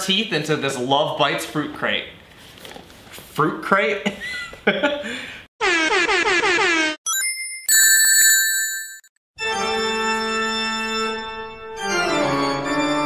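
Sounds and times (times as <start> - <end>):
high ringing tones: 7.1 - 9.1.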